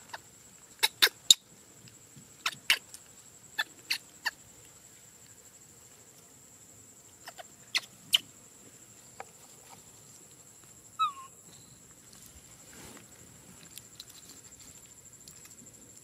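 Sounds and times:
baby monkey squeak: 0.8 - 1.4, 2.4 - 2.8, 7.2 - 8.2, 11.0 - 11.3.

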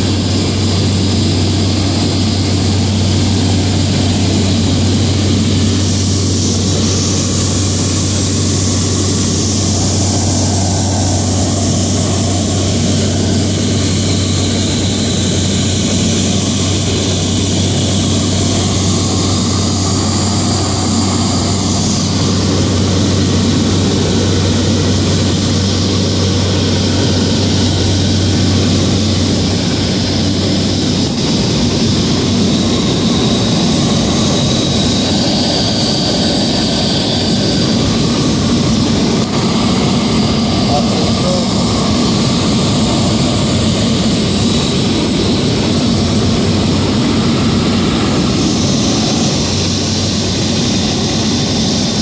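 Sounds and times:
propeller aircraft engine droning: 0.0 - 52.0.

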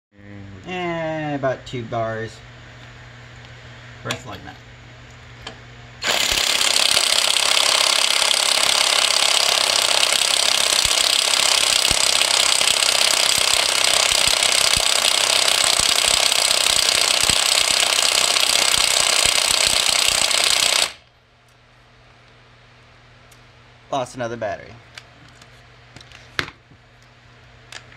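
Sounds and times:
impact wrench rattling: 6.0 - 21.0.

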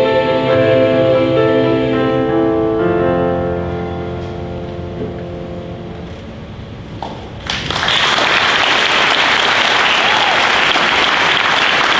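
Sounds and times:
choir and piano chord: 0.0 - 6.2
audience applause: 7.4 - 11.9.

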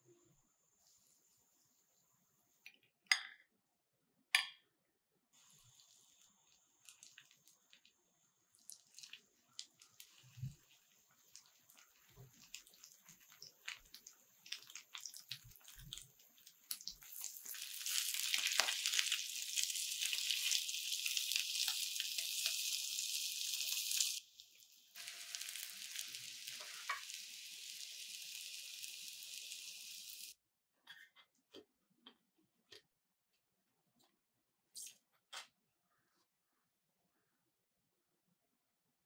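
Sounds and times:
bread frying in butter: 5.4 - 30.3.

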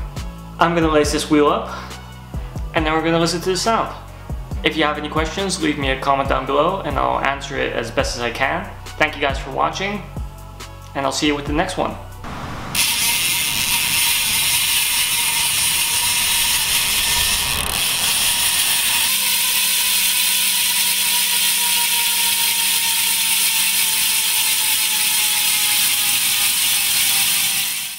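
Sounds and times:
bicycle hub ratcheting buzz: 12.3 - 27.9.

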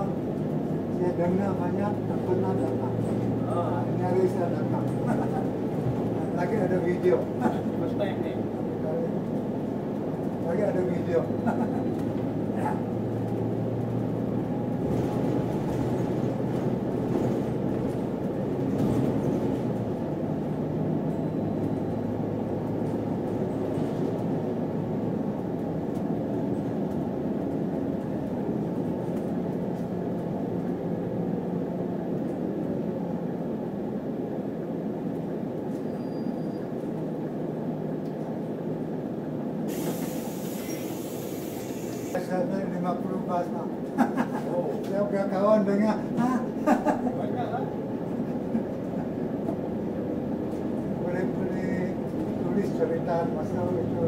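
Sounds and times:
bus engine and road rumble: 0.0 - 54.0
brief hiss: 39.7 - 42.2.

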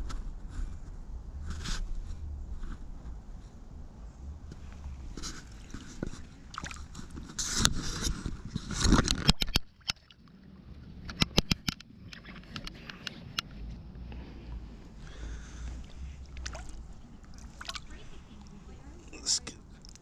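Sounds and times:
creek water splashing: 5.2 - 8.1, 15.1 - 20.0
sharp clicks: 11.1 - 13.5.

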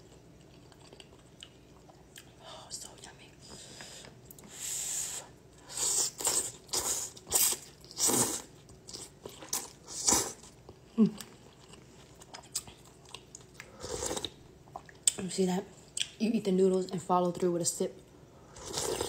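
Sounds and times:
quiet chewing: 0.0 - 4.5, 8.6 - 15.2
loud noodle slurping: 5.7 - 8.5.

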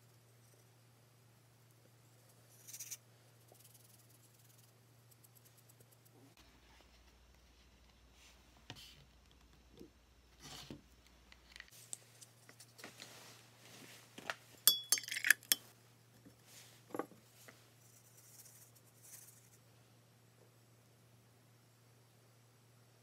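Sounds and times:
sharp ringing clinks: 14.7 - 15.6.

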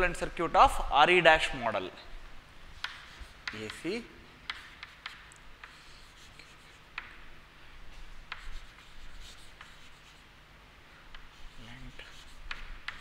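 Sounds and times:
chalk scratching on chalkboard: 2.7 - 7.1, 7.9 - 10.3, 11.1 - 13.0
chalk tapping on board: 2.8 - 7.2, 8.1 - 10.2, 11.1 - 13.0.

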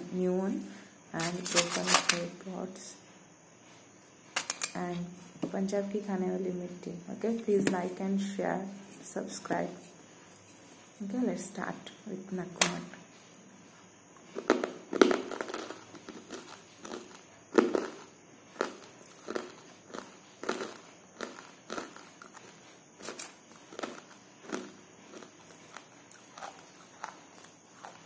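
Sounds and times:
person crunching hard clay: 14.3 - 27.2.

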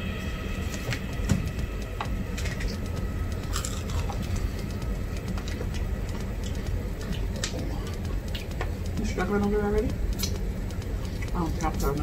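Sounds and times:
low rumble: 0.0 - 12.0
people chewing and lip smacking: 3.5 - 4.5, 5.3 - 8.6, 10.2 - 10.4.

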